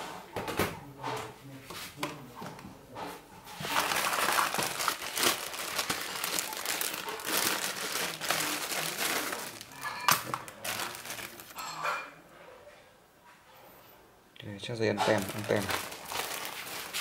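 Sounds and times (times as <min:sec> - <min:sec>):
plastic bag crinkling: 0:03.6 - 0:11.7, 0:14.9 - 0:17.0.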